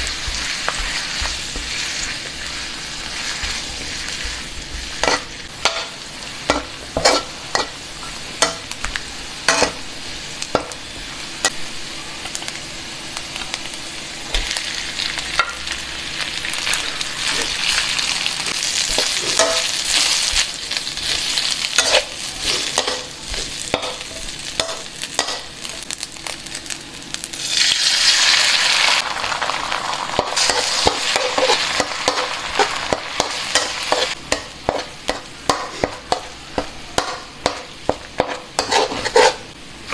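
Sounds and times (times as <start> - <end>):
metal spatula scraping wok: 0.0 - 8.7, 30.2 - 36.3, 37.0 - 39.9
oil sizzling: 0.0 - 39.9.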